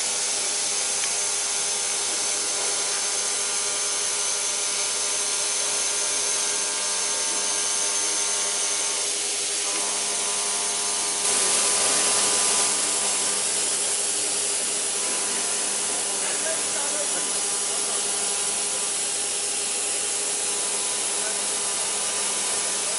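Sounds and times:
hiss of metal cutting: 0.0 - 22.9
milling machine spindle whine: 0.0 - 22.9
loud hiss: 9.0 - 22.9.

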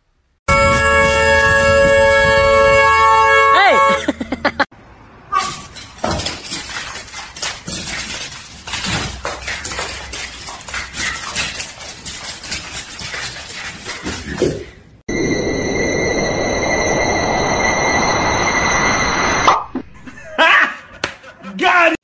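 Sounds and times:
high whine with hiss: 15.1 - 19.5.

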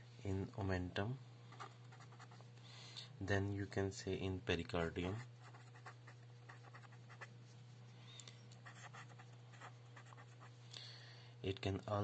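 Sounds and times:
steady low hum: 0.0 - 12.0
felt-tip pen scratching on paper: 5.2 - 7.3, 8.6 - 10.5.

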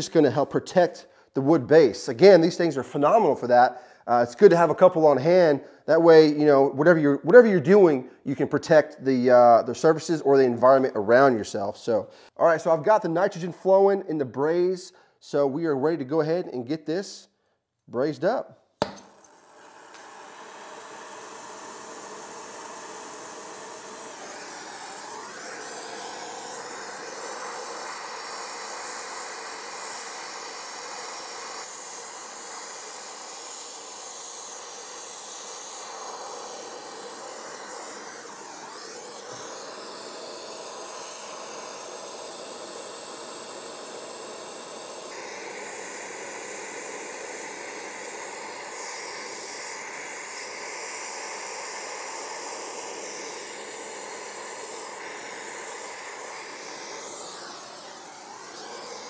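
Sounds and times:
torch flame hissing: 18.8 - 59.0.

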